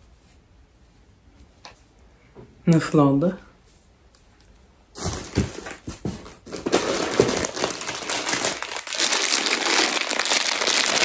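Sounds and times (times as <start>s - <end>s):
hands rummaging in cardboard box: 5.0s - 11.0s
plastic bag crinkling: 5.0s - 11.0s.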